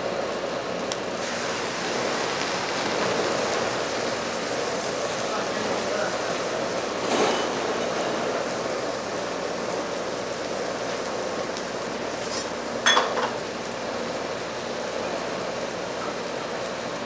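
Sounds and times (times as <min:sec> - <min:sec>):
shrimp sizzling on hot stones: 0:00.0 - 0:17.0.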